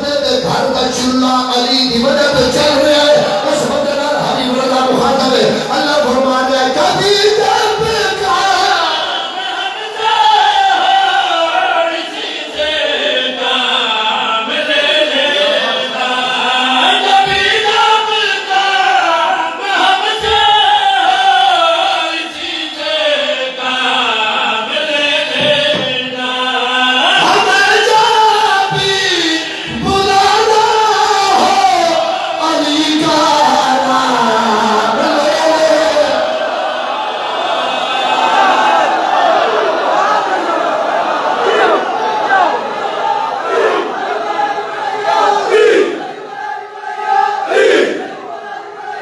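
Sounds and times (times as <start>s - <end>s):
man chanting devotional melody: 0.0s - 36.3s.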